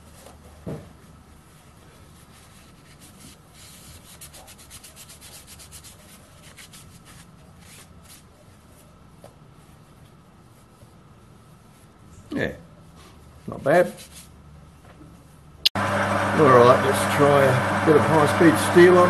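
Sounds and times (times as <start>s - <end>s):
paper towel scrubbing metal: 16.3s - 19.0s.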